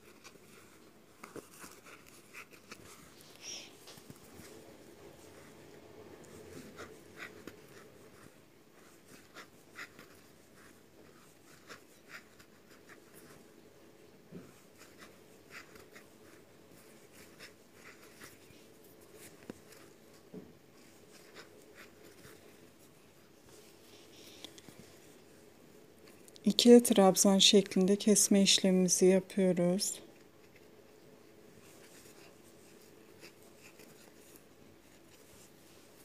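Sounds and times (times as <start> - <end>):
crochet hook scratching yarn: 0.0 - 25.2, 26.0 - 36.0.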